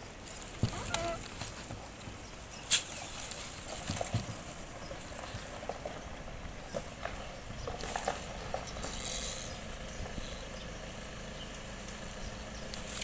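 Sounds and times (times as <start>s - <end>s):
small clicks scrapes and squeaks: 7.8s - 9.6s.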